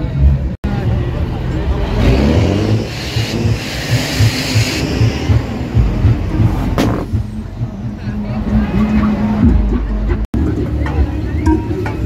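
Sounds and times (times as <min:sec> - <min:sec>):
cars rumbling and booming: 0:00.0 - 0:12.0
sharp knock: 0:06.8 - 0:07.2.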